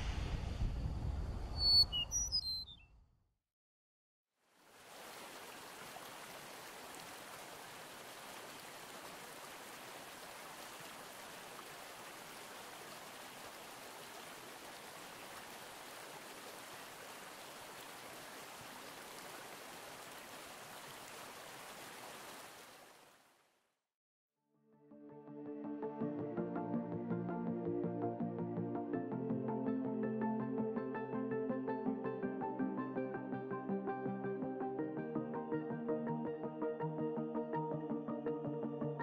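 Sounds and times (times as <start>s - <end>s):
stream flowing: 4.5s - 23.4s.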